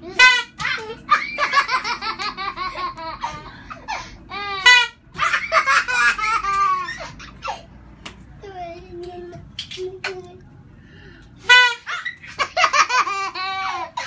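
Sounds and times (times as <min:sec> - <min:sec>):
baby laughing: 0:00.6 - 0:07.7, 0:11.8 - 0:14.0.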